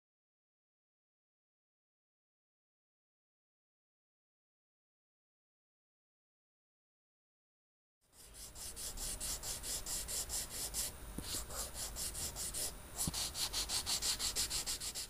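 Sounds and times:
brush scratching on canvas: 8.2s - 15.0s.

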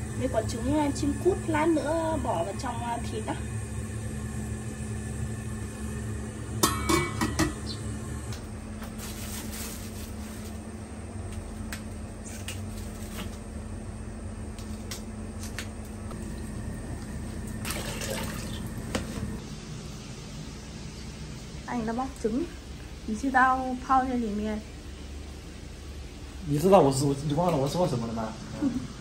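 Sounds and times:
steady hum: 0.0s - 29.0s
greens being rinsed with splashing: 16.2s - 19.4s.

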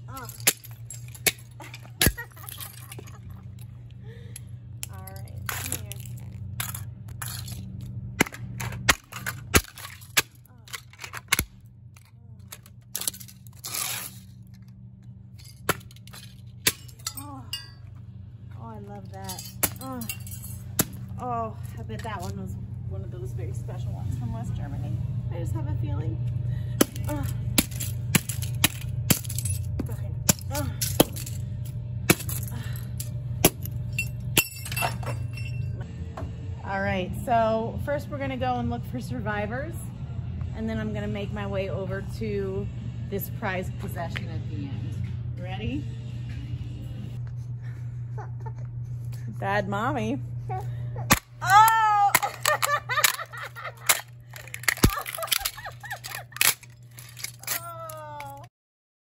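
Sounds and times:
low steady hum: 0.0s - 58.5s
plastic toys cracking underfoot: 4.9s - 14.6s, 51.1s - 58.5s.

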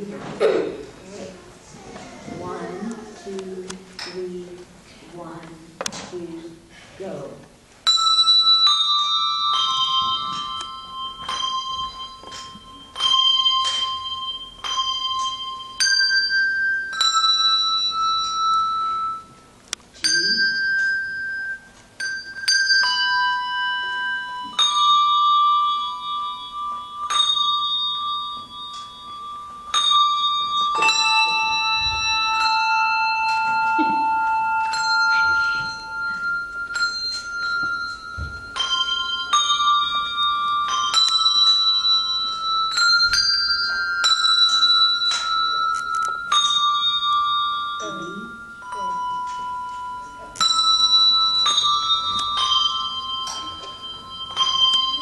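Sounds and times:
handbell choir playing: 7.8s - 55.0s.

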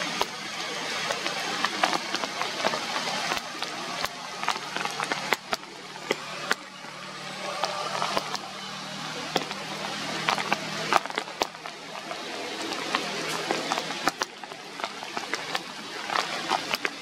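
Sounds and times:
rain falling on leaves: 0.0s - 17.0s.

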